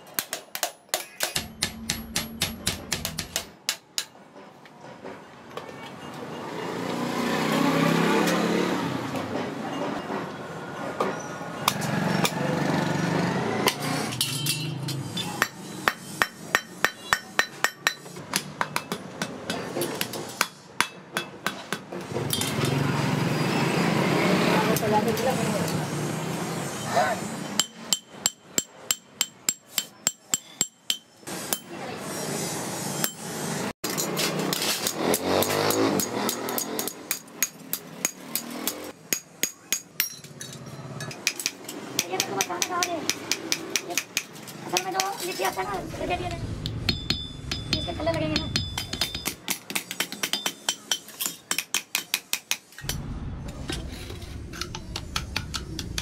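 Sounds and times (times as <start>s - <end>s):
hammer tapping sheet metal: 0.2s - 4.2s, 46.3s - 53.0s, 54.6s - 56.0s.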